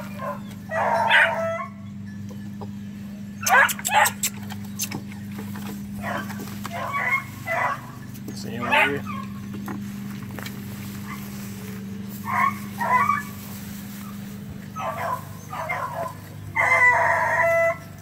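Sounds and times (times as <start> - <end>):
dog baying: 0.0 - 2.0, 3.4 - 9.6, 11.0 - 18.0
steady low hum: 0.0 - 18.0
dog barking: 0.2 - 1.8, 3.4 - 4.3, 6.0 - 8.0, 8.6 - 9.2, 12.2 - 13.4, 14.8 - 17.8.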